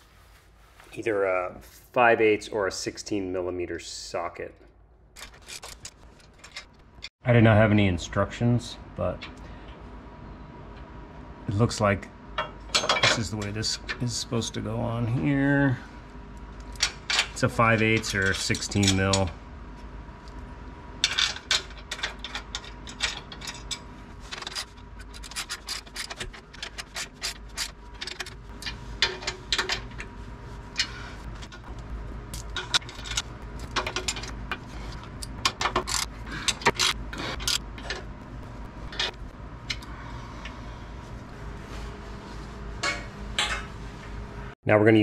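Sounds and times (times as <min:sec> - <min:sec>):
metal clinks and scrapes: 0:05.2 - 0:07.1, 0:21.0 - 0:31.7, 0:32.3 - 0:38.1.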